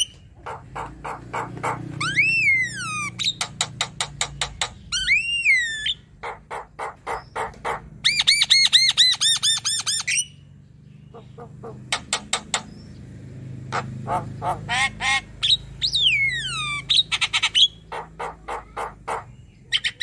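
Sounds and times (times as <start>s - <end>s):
bird whistling: 2.0s - 3.5s, 4.4s - 6.1s, 15.4s - 17.8s.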